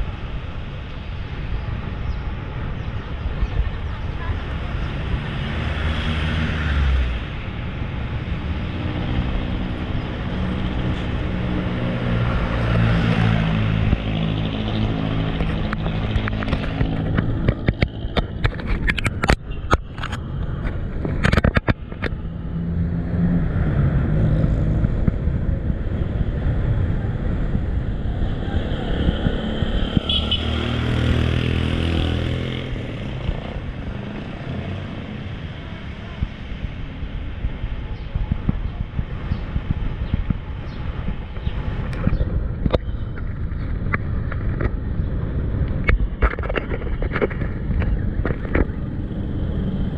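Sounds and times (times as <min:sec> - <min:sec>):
car engines running: 0:00.0 - 0:49.9
sharp rattles and knocks: 0:13.9 - 0:22.2, 0:45.7 - 0:48.8.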